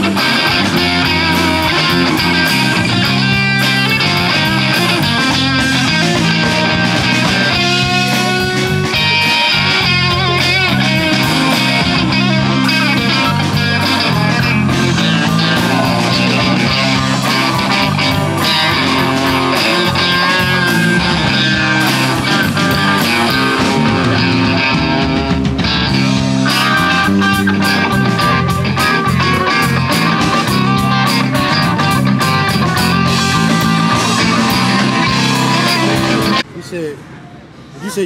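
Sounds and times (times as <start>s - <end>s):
bass guitar: 0.0s - 36.5s
drum kit: 0.0s - 36.5s
electric guitars: 0.0s - 36.5s.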